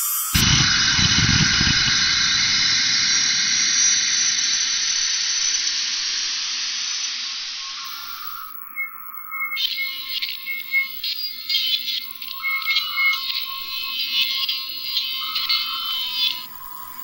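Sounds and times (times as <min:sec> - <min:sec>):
synthesized metallic noise hit: 0:00.3 - 0:06.6
low rumble: 0:00.4 - 0:05.6.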